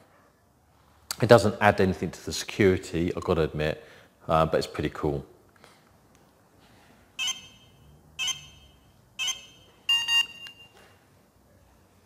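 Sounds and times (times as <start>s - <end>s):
remote pager beeping: 7.2s - 10.9s.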